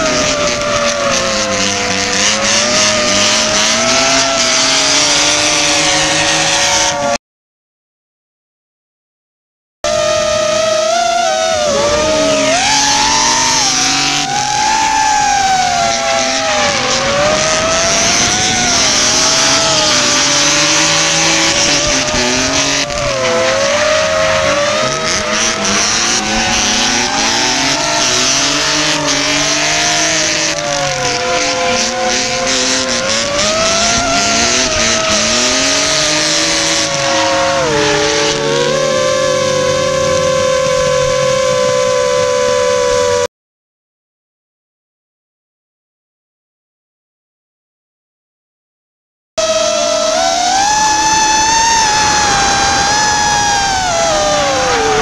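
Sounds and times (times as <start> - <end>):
car engines revving: 0.0 - 7.2, 9.9 - 43.3, 49.4 - 55.0
drone motors whining: 0.0 - 7.2, 9.9 - 43.3, 49.4 - 55.0
tyres squealing: 11.0 - 39.2.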